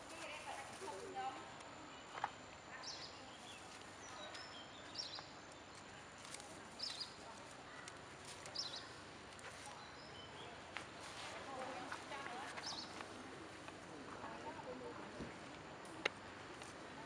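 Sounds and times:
quiet outdoor background noise: 0:00.0 - 0:17.0.

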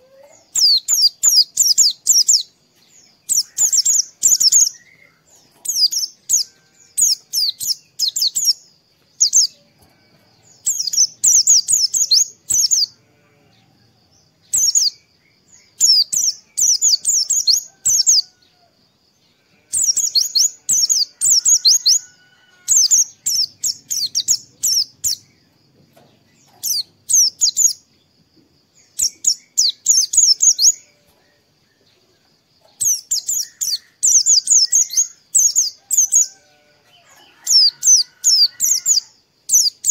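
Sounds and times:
bird twittering: 0:19.7 - 0:25.3.

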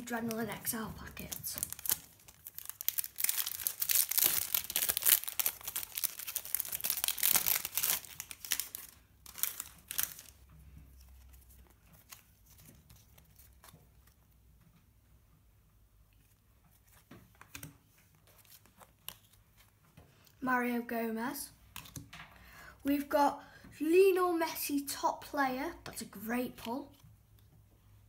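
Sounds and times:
foil packet tearing and crinkling: 0:01.2 - 0:10.4.

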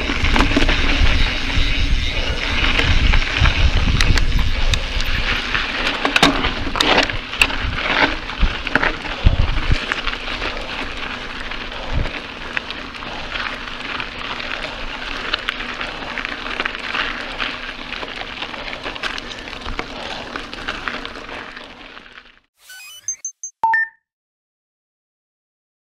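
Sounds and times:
bike tyres crunching on gravel: 0:00.0 - 0:22.5
small crackles and knocks: 0:05.8 - 0:22.5.

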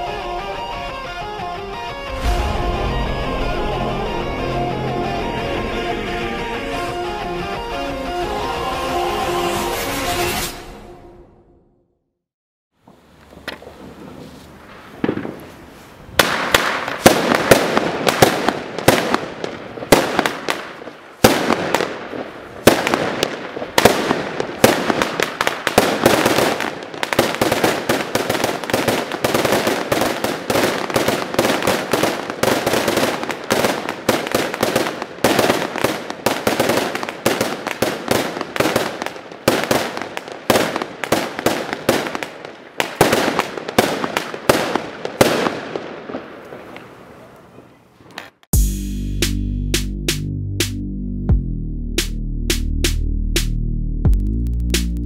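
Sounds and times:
firework battery rapid bangs: 0:16.2 - 0:46.3.

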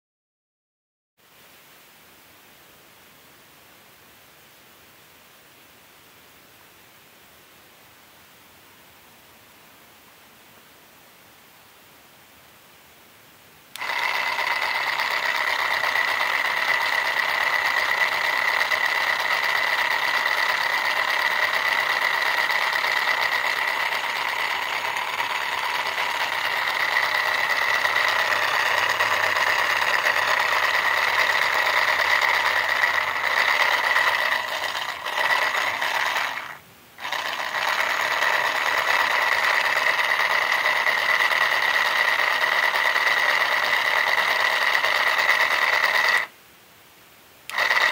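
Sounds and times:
small motor driving gears whining: 0:13.8 - 0:46.3, 0:47.5 - 0:47.9.

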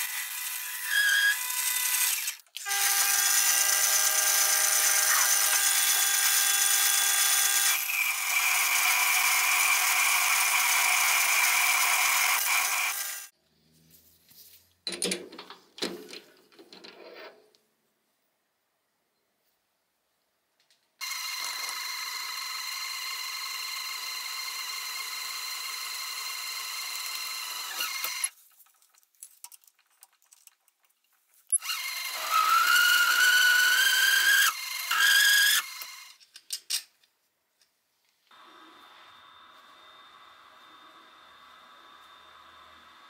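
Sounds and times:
electric power tool motor whining: 0:00.3 - 0:13.3, 0:21.0 - 0:28.3.

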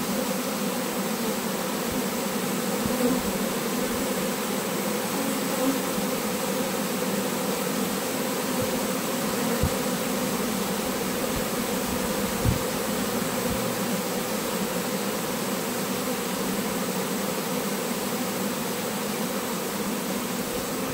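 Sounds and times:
bee swarm buzzing: 0:00.0 - 0:20.9
brief low bumps: 0:11.3 - 0:13.7.

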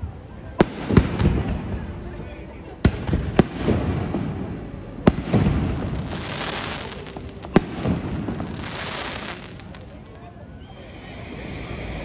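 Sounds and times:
firework crackling: 0:00.5 - 0:02.0, 0:02.8 - 0:12.0
firework bangs: 0:00.6 - 0:01.9, 0:02.8 - 0:10.1.

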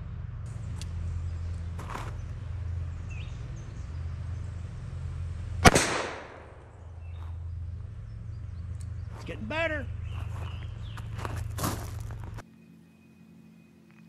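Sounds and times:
gunshot with echo: 0:05.6 - 0:06.6.

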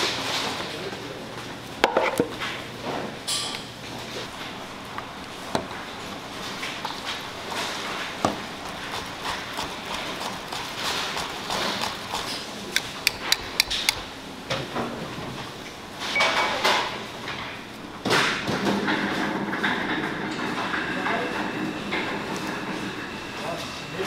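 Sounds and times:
whisk beating in metal bowl: 0:07.5 - 0:14.0
sharp metallic clicks: 0:12.8 - 0:14.0.

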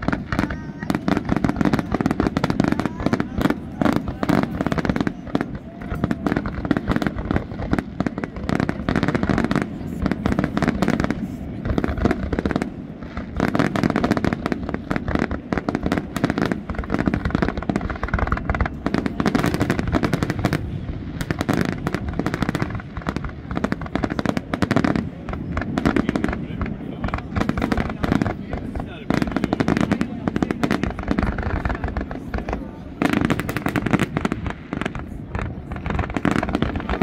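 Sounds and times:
fireworks bangs and crackling: 0:00.0 - 0:37.0.

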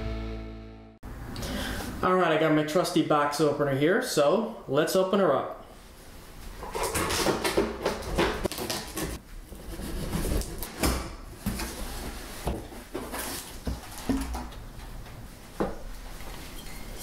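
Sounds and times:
box cutter slicing packing tape: 0:08.5 - 0:10.8
cardboard rustling: 0:11.4 - 0:14.4.

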